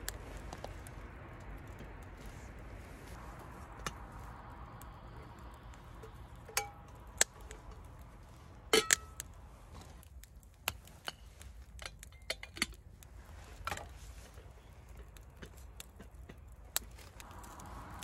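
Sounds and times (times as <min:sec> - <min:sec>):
faint campfire crackling: 0:00.0 - 0:18.0
metal kettle clinks and knocks: 0:11.8 - 0:12.8.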